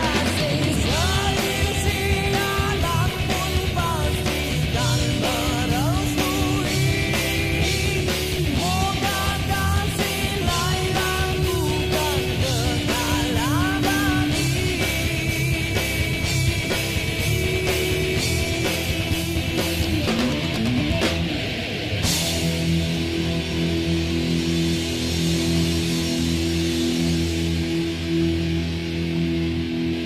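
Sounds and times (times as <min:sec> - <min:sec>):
person singing: 0:00.0 - 0:16.0
steady drum beat: 0:00.0 - 0:27.7
electric guitar: 0:00.0 - 0:30.0.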